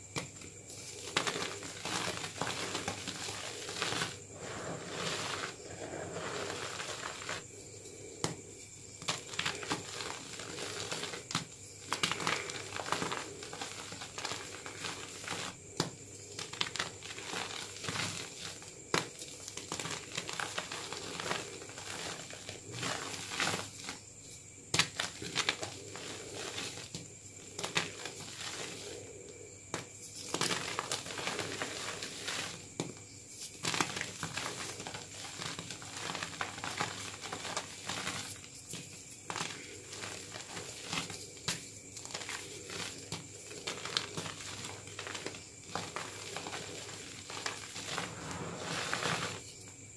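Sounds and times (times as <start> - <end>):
chalk crumbling by hand: 0.2 - 7.4, 9.0 - 24.0, 24.7 - 29.0, 29.7 - 49.6.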